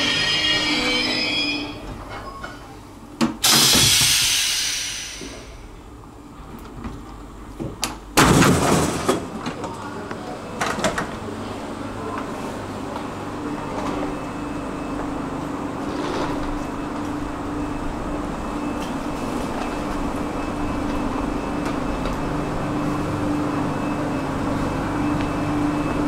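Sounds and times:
train wheel squeal: 0.0 - 2.7
loud bang of train doors: 3.2 - 5.6, 8.2 - 9.3
loud hiss of air: 3.4 - 5.7.

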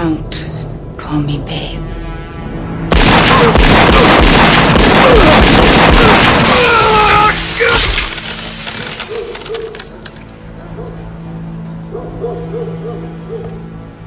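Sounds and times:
pistol gunfire volley: 2.9 - 6.6
man yelling: 6.5 - 8.0.

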